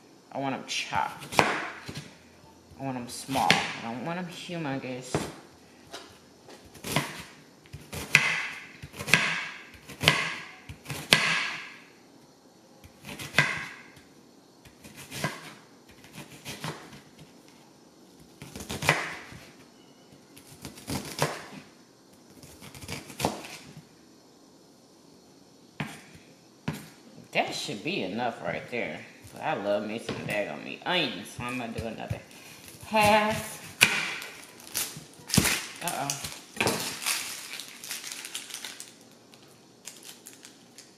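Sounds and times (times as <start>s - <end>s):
knife chopping on wooden board: 1.3s - 2.0s, 7.8s - 11.7s, 13.0s - 13.8s, 18.4s - 19.4s, 33.0s - 34.3s.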